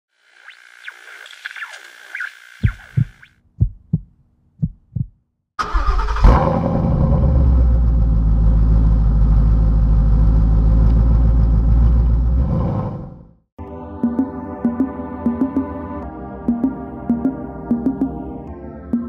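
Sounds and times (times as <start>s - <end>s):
low heartbeat-like thumps: 2.6s - 5.2s
car engine starting and idling: 5.6s - 12.4s.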